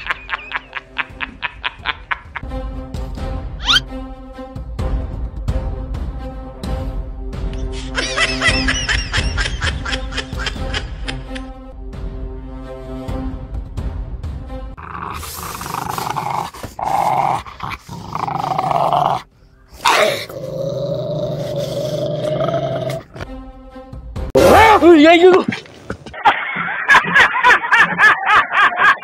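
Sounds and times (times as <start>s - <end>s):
dog growling: 14.8s - 23.2s.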